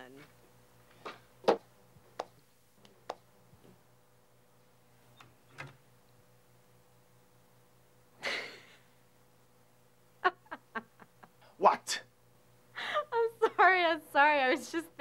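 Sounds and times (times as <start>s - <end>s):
low room hum: 0.0s - 15.0s
woman snickering and laughing: 10.2s - 11.4s.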